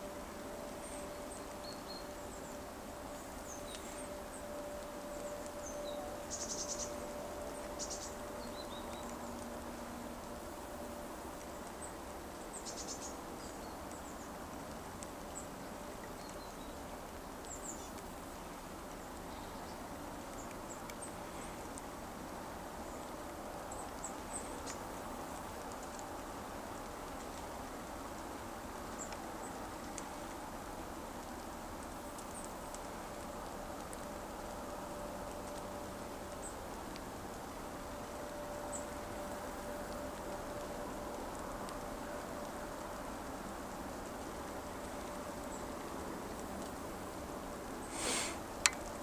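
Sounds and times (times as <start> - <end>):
faint steady hum: 0.0 - 49.0
small birds chirping: 0.5 - 9.5, 11.4 - 14.4, 15.3 - 21.8
high bird trills: 5.6 - 9.0
outdoor rushing hiss: 47.8 - 49.0.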